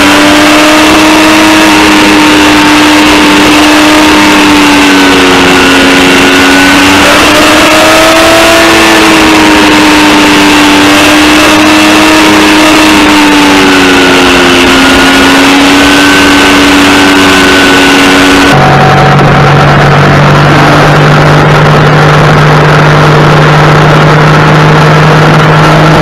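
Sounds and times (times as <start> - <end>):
motorcycle engine cruising: 0.0 - 26.0
wind rushing on microphone: 13.2 - 26.0.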